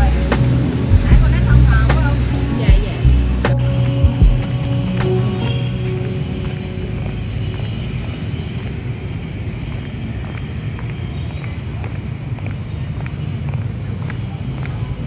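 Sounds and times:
low rumble: 0.0 - 8.7.

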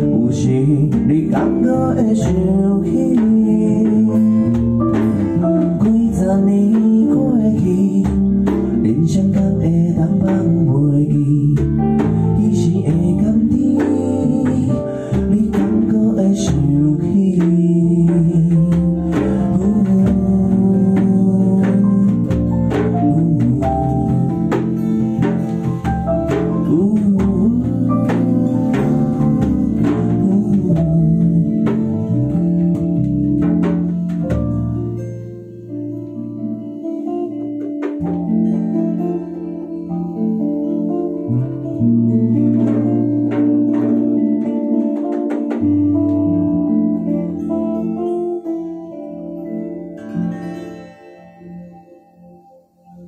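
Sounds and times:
man singing: 0.0 - 25.4, 26.3 - 33.0
light percussion: 0.0 - 48.5
electric bass: 0.0 - 50.6
strummed acoustic guitar: 0.0 - 52.4
electric guitar: 0.0 - 53.0.

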